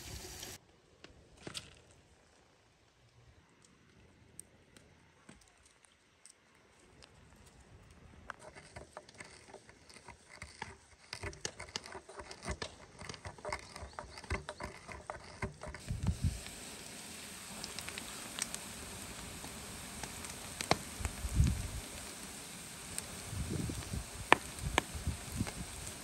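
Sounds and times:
steady hiss: 0:00.0 - 0:00.6, 0:15.8 - 0:26.0.

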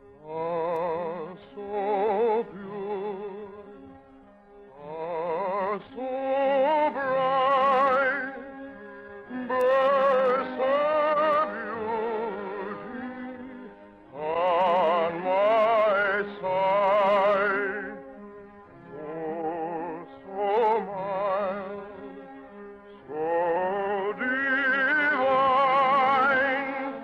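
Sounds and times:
operatic singer with vibrato: 0:09.3 - 0:18.0, 0:18.9 - 0:22.0, 0:23.0 - 0:27.0.

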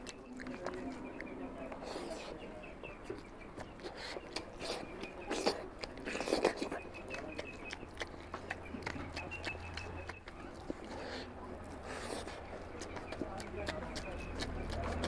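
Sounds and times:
person chewing food: 0:00.0 - 0:15.0.

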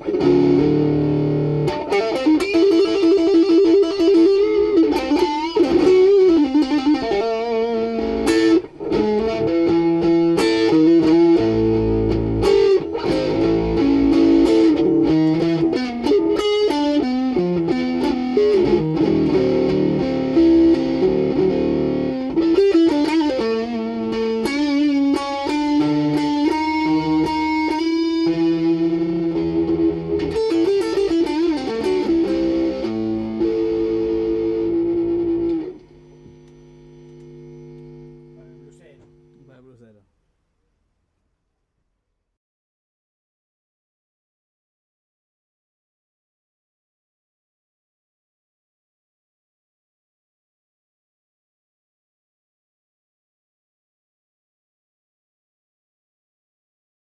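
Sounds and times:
electric guitar blues line: 0:00.0 - 0:39.7.

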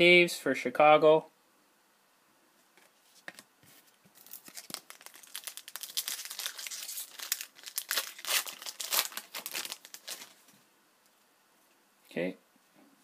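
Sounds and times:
foil wrapper crinkling and tearing: 0:04.1 - 0:10.4.

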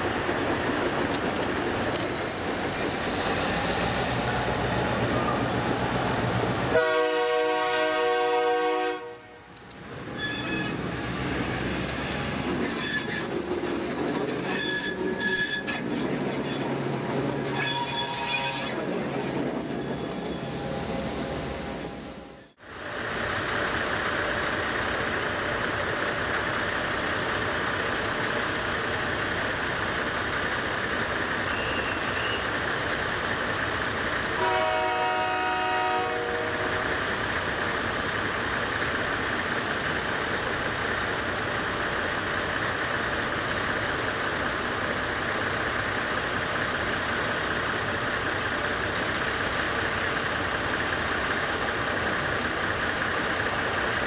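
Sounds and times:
train horn: 0:06.7 - 0:09.4, 0:34.4 - 0:36.8
diesel engine running: 0:36.4 - 0:54.0.

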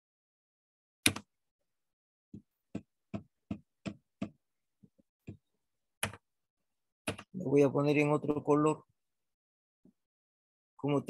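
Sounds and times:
computer mouse clicking: 0:01.1 - 0:01.3.

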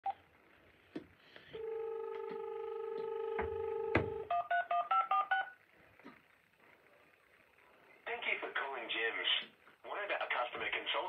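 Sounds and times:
phone dial tone: 0:01.4 - 0:05.6.

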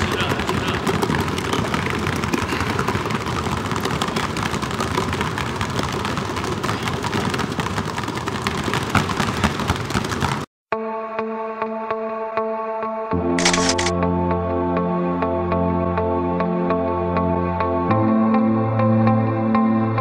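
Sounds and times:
basketballs dribbling on hardwood: 0:00.0 - 0:10.5.

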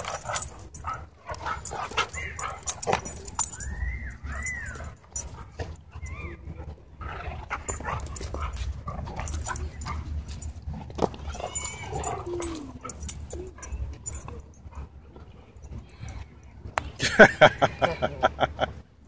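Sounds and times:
dog whining and whimpering: 0:01.6 - 0:06.5, 0:11.3 - 0:14.5.

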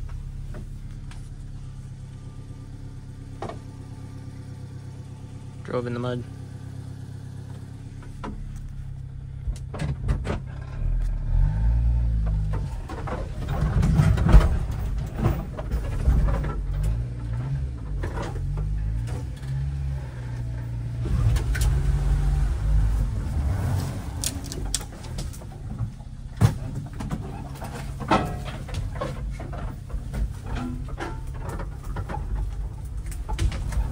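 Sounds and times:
truck engine running: 0:00.0 - 0:33.9
knocks and rattles: 0:09.4 - 0:11.2, 0:12.2 - 0:19.7, 0:24.1 - 0:33.9.

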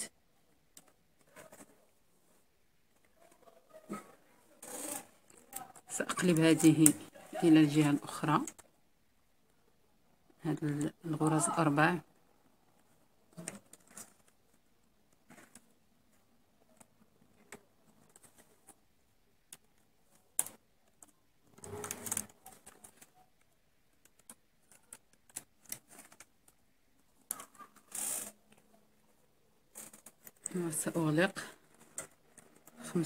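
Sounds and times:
rustling scrapes: 0:21.5 - 0:23.1.

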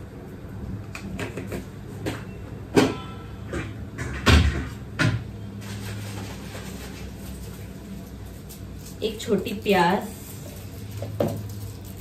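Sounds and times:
kitchen knocks and clatters: 0:01.0 - 0:07.4.

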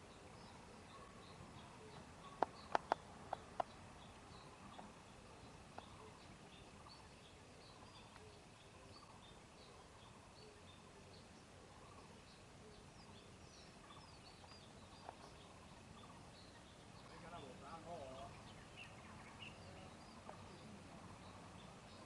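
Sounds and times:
birds chirping: 0:00.0 - 0:22.0
faint click: 0:08.1 - 0:08.3.

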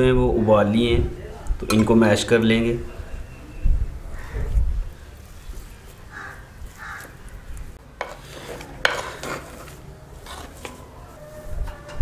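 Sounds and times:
potatoes squishing under masher: 0:05.1 - 0:11.0.

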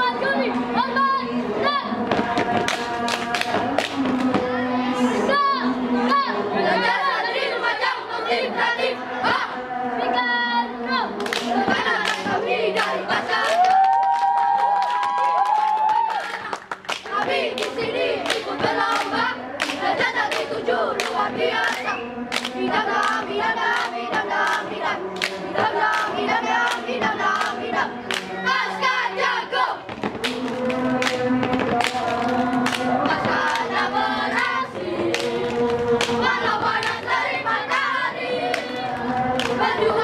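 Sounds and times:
boys chanting a cheer in unison: 0:00.0 - 0:40.0
sharp hand claps: 0:02.1 - 0:04.4, 0:11.2 - 0:24.6, 0:27.4 - 0:28.3, 0:29.9 - 0:33.7.

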